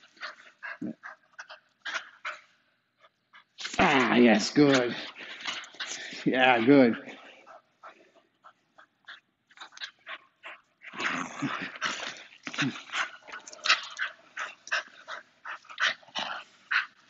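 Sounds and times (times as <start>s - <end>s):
dog growling in play: 10.8s - 16.9s.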